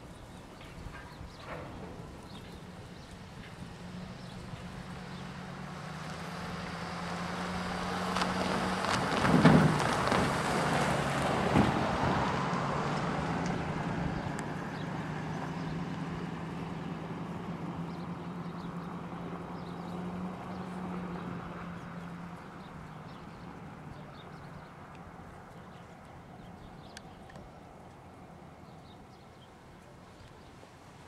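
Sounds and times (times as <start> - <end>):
pickup truck driving past: 1.4 - 25.4.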